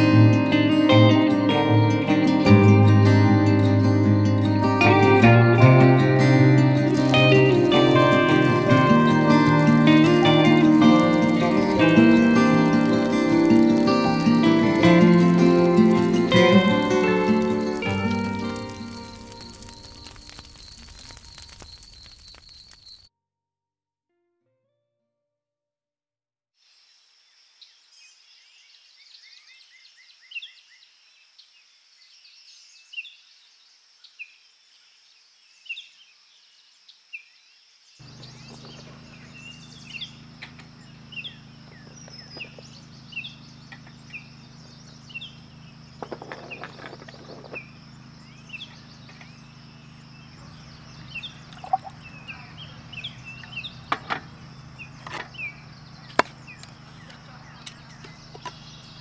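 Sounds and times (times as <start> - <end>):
steady low hum: 0.0 - 21.4, 38.0 - 59.0
steady high-pitched hiss: 0.0 - 23.0, 37.8 - 59.0
birds chirping: 0.0 - 23.1, 38.0 - 59.0.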